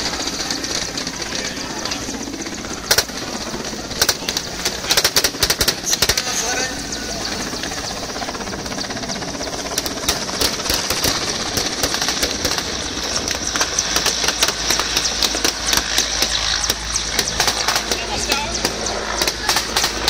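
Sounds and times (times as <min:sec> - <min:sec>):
helicopter rotor rumble: 0:00.0 - 0:20.0
sharp cracks and pops: 0:04.0 - 0:06.3, 0:09.7 - 0:20.0.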